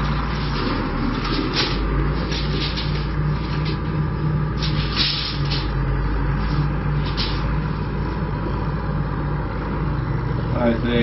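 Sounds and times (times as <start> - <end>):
tape measure scraping wood: 0.0 - 3.9, 4.5 - 7.6
low rumble with pulsing hum: 0.0 - 11.0.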